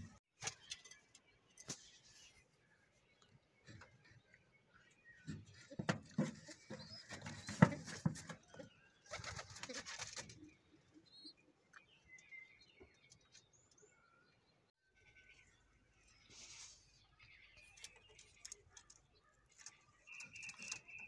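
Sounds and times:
young pigeons squeaking: 5.0s - 11.5s, 16.1s - 21.0s.

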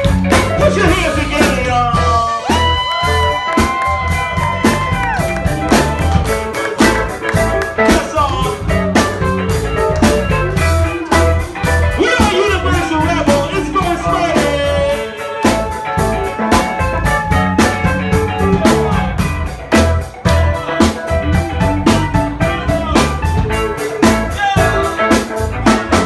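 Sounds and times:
congas: 0.0s - 19.1s
drum kit: 0.0s - 26.0s
guitar: 0.0s - 26.0s
person singing: 0.6s - 3.7s, 11.9s - 19.2s, 22.4s - 26.0s.

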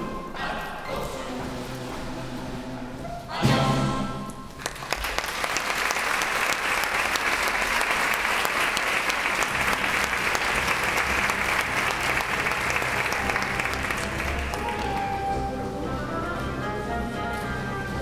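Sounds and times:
audience applauding: 4.6s - 15.5s.

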